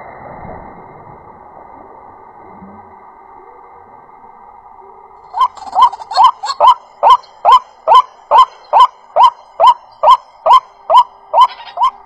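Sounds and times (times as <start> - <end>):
bird honking call: 5.4 - 12.0.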